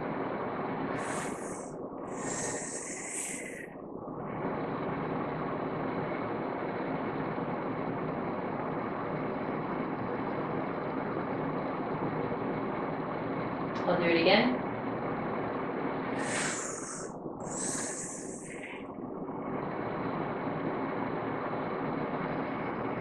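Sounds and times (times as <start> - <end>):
steady background hum: 0.0 - 23.0
woman inhaling deeply: 1.0 - 3.7, 16.2 - 18.8.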